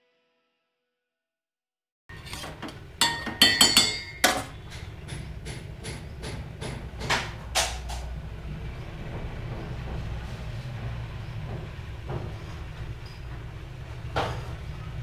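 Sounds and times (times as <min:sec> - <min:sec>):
metal spoon clinking on steel pot: 0:02.1 - 0:05.0.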